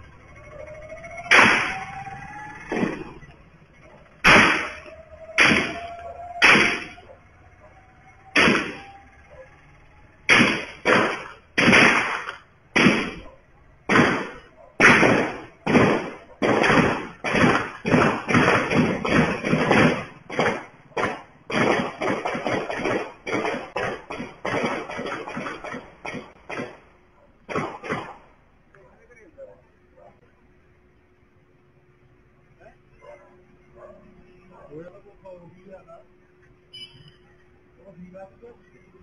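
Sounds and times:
gunshots with echo: 1.1s - 2.0s, 2.6s - 3.3s, 4.2s - 7.3s, 8.3s - 9.2s, 10.2s - 26.9s, 27.5s - 28.4s.

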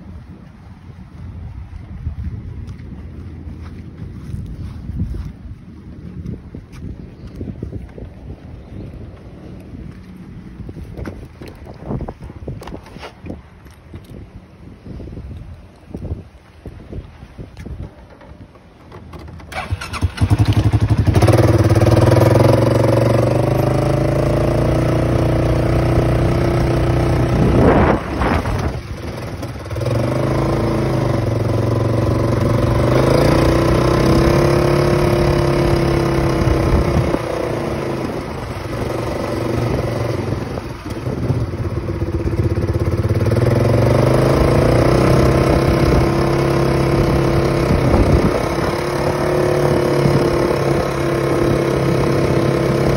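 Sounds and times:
atv engine running: 17.5s - 52.9s.

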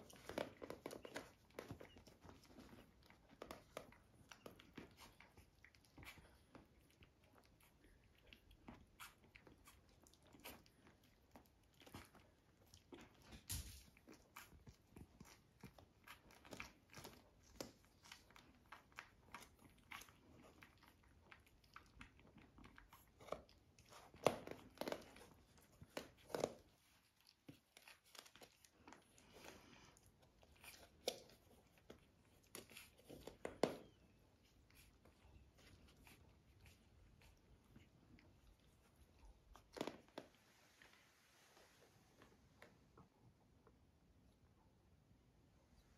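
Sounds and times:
puppies suckling clicks: 0.0s - 40.3s.

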